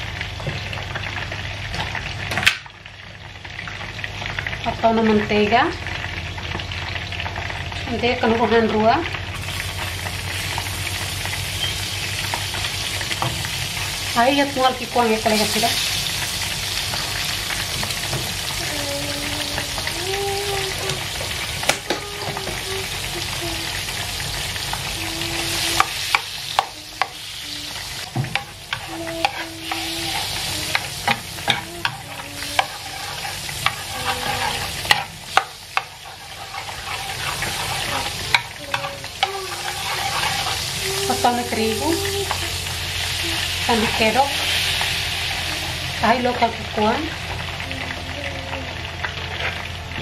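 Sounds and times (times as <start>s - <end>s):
butter sizzling in frying pan: 0.0s - 50.0s
metal spoon scraping pan: 28.3s - 41.4s.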